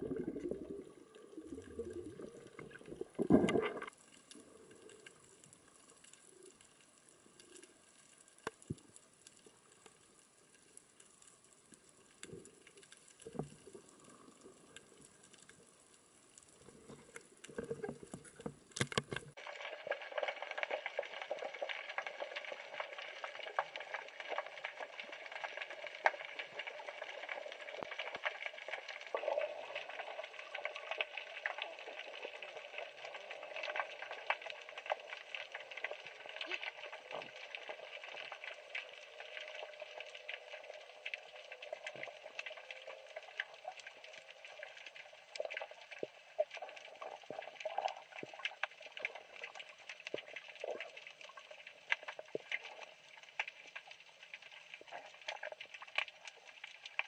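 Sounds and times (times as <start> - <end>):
underwater reef crackling: 0.0 - 57.0.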